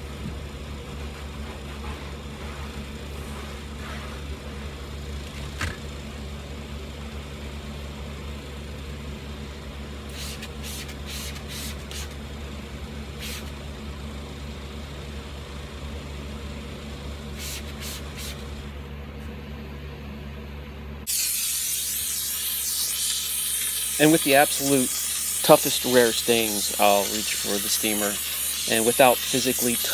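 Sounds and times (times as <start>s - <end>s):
steady low hum: 0.0s - 29.9s
spray bottle squirting: 10.1s - 12.2s, 13.2s - 13.6s, 17.4s - 18.5s, 21.1s - 29.9s
steam cleaner hissing: 10.1s - 12.2s, 13.1s - 13.6s, 17.3s - 18.5s, 21.1s - 29.9s.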